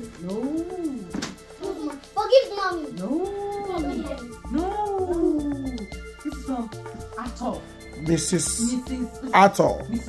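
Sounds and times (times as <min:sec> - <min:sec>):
music with low beat: 0:00.0 - 0:10.0
child whining: 0:03.0 - 0:06.0.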